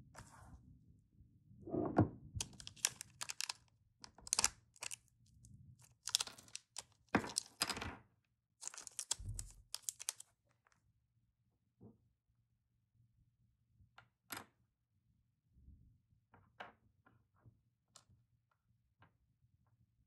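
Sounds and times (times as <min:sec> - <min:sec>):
plastic bag crinkling: 0:02.4 - 0:03.5, 0:04.2 - 0:05.0, 0:05.8 - 0:07.7, 0:08.6 - 0:10.2.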